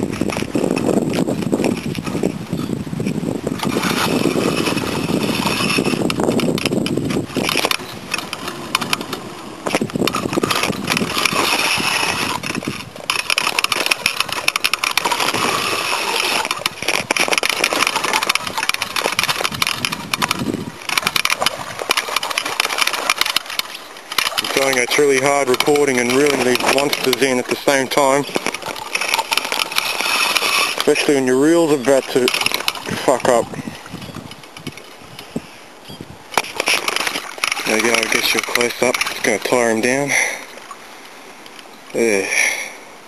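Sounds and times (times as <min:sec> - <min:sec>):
fishing reel clicking: 0:03.5 - 0:33.4, 0:36.4 - 0:39.6
person talking: 0:24.4 - 0:28.4, 0:30.8 - 0:33.6, 0:37.6 - 0:40.4, 0:41.9 - 0:42.6.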